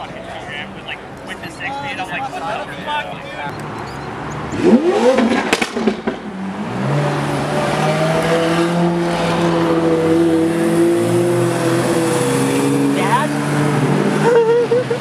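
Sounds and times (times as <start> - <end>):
sports car engine revving: 4.3 - 15.0
exhaust pops: 4.5 - 6.4.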